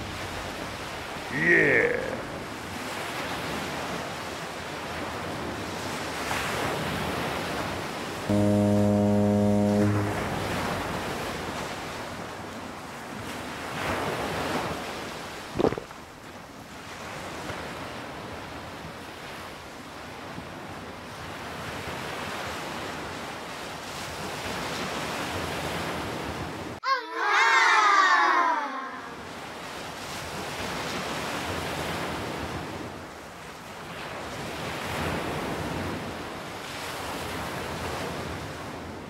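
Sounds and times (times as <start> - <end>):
wavering pitched sound effect: 8.3 - 11.0
low foghorn blast: 8.3 - 11.6.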